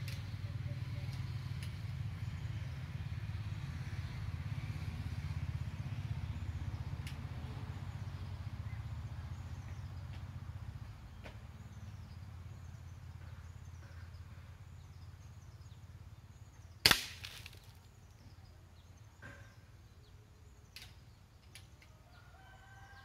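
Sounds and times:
air rifle shot crack: 16.8s - 17.6s.

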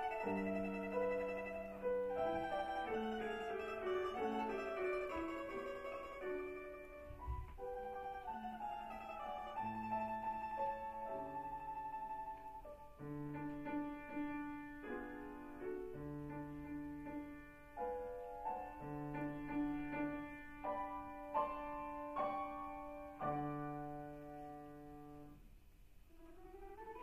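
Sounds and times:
domra melody: 0.0s - 16.7s
piano chords: 0.0s - 27.0s.

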